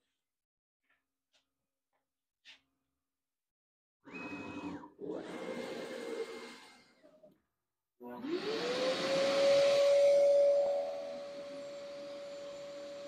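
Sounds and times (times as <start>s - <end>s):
router spindle whine: 8.2s - 13.0s.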